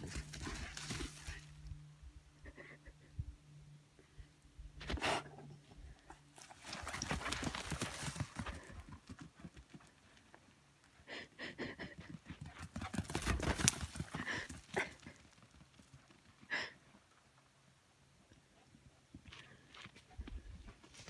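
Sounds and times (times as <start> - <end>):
dog paws pounding on dry dirt: 0.0 - 1.5, 6.3 - 10.4, 12.0 - 16.5.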